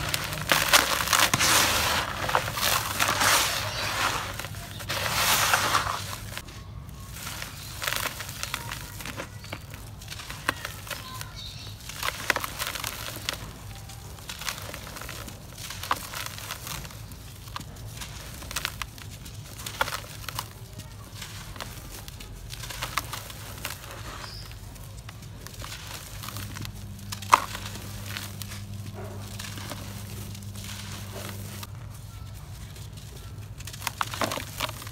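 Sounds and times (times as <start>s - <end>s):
dry cement crumbling by hand: 0.0s - 34.9s.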